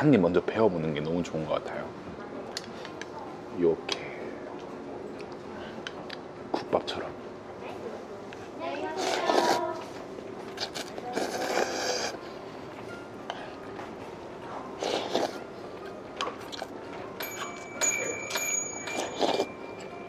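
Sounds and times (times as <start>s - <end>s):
person slurping noodles: 9.0s - 9.8s, 10.5s - 12.3s, 14.8s - 15.4s, 19.0s - 19.5s
person chewing: 10.5s - 12.2s, 14.8s - 15.4s, 16.4s - 16.8s, 18.9s - 19.5s
high bell-like ringing tone: 17.2s - 20.0s.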